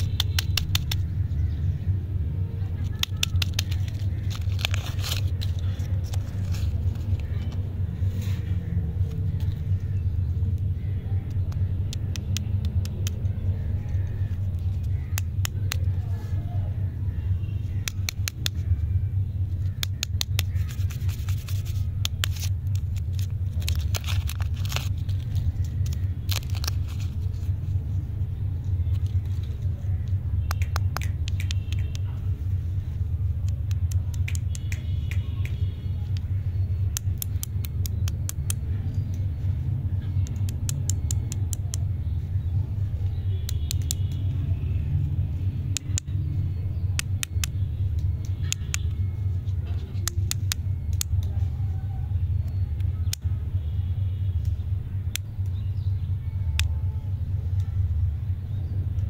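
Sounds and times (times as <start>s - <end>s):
steady low hum: 0.0s - 59.0s
plastic wrappers crinkling: 2.8s - 7.6s, 20.3s - 27.9s.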